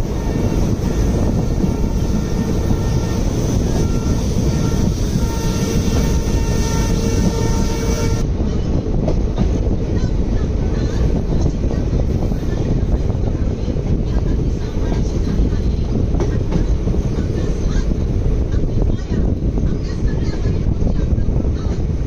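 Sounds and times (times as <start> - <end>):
distant locomotive horn: 0.0 - 8.3
train wheels rumbling: 0.0 - 22.0
wind rush: 0.0 - 22.0.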